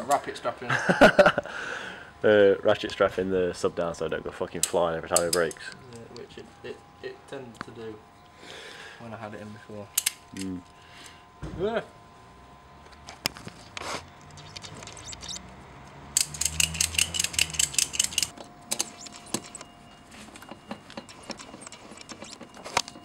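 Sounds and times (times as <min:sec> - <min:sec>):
ratchet strap clicking: 0:14.2 - 0:15.5, 0:16.1 - 0:19.6.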